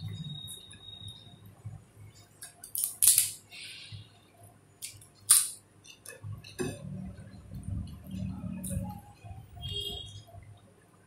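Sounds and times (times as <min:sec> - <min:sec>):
papadam cracking and crackling: 0:02.3 - 0:03.6, 0:04.8 - 0:06.6.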